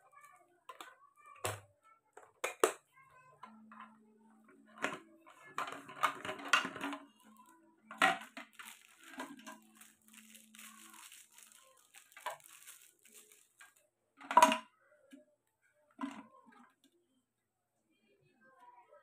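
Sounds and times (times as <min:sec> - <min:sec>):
plastic parts clicking and knocking: 0:00.7 - 0:04.0, 0:04.6 - 0:14.7.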